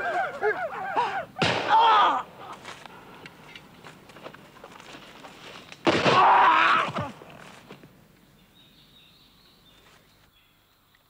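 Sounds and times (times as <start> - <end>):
woodland background: 0.0 - 11.0
musket shot: 1.4 - 1.9, 5.8 - 6.3.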